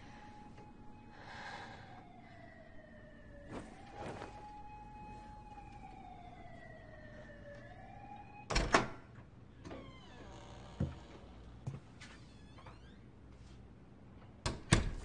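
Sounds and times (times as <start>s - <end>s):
distant siren wailing: 0.0s - 11.5s
soft rustles: 3.3s - 7.6s.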